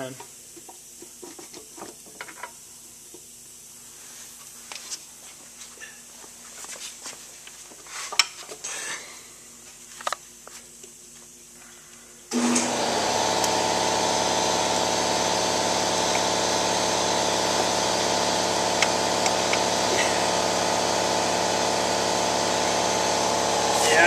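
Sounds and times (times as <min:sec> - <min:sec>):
machine humming loudly: 0:12.3 - 0:24.0.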